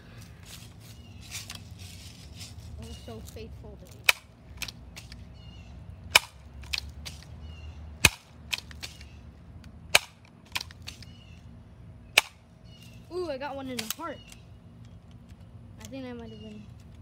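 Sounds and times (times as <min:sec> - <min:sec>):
air rifle pump snapping: 0:04.0 - 0:05.2, 0:08.0 - 0:11.2, 0:13.7 - 0:15.9.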